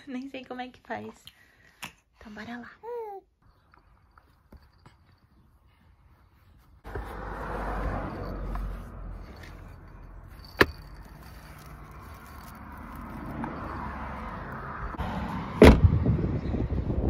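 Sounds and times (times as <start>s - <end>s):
car door slamming shut: 15.6s - 15.9s.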